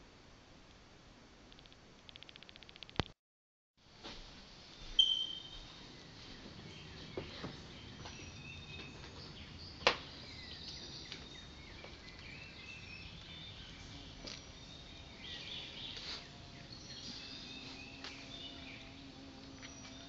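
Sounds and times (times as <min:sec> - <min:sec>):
sharp click: 0:01.5 - 0:03.2
birds chirping: 0:04.8 - 0:20.0
short high squeak: 0:05.0 - 0:05.6.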